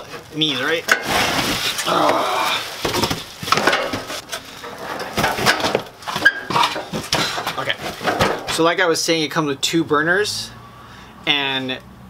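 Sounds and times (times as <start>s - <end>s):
cardboard scraping: 0.0s - 8.6s
plastic wrapping crinkling: 0.2s - 8.2s.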